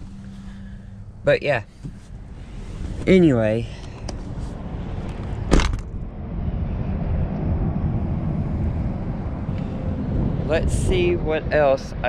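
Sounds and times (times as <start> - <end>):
wind buffeting microphone: 2.4 - 12.0.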